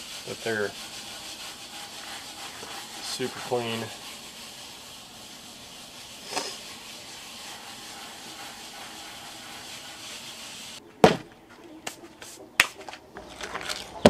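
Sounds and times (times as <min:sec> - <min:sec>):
hands rubbing salt into skin: 0:00.0 - 0:10.8.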